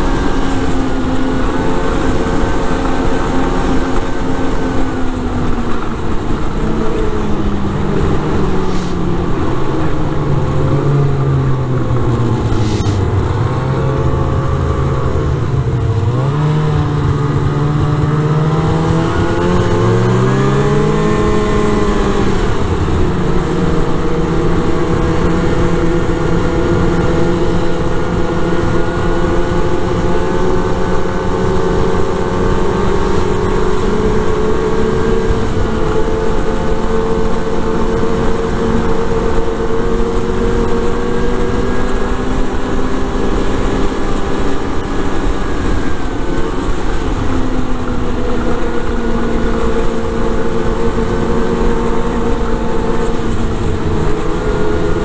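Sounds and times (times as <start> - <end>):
snowmobile engine running: 0.0 - 55.0
track noise: 0.0 - 55.0
wind rushing: 5.0 - 36.4.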